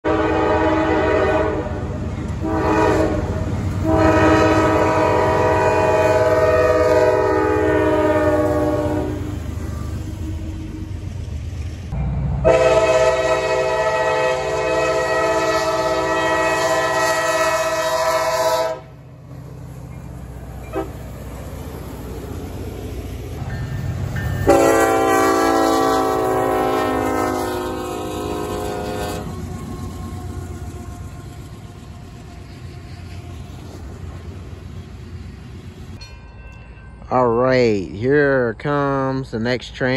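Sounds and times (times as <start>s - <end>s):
locomotive air horn chord: 0.0s - 10.5s, 12.4s - 19.0s, 20.6s - 21.0s, 24.4s - 29.8s
low rumble of passing train: 0.0s - 39.9s.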